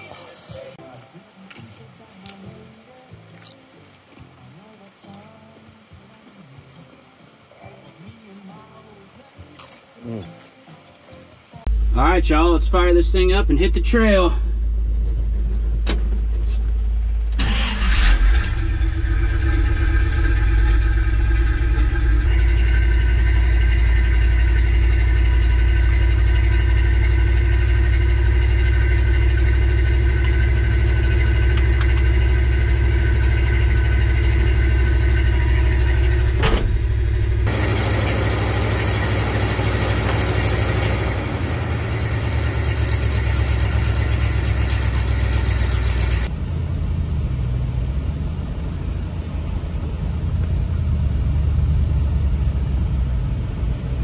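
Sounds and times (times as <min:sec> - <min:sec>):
steady hiss: 0:00.0 - 0:11.7
car engine starting and idling: 0:11.4 - 0:54.0.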